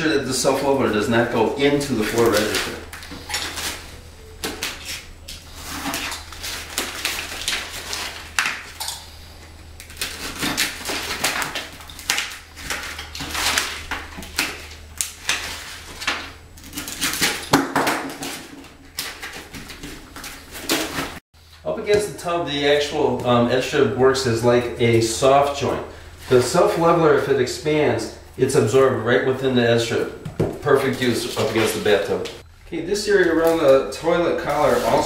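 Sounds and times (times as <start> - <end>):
rustling and clicks of handling: 1.6 - 17.5.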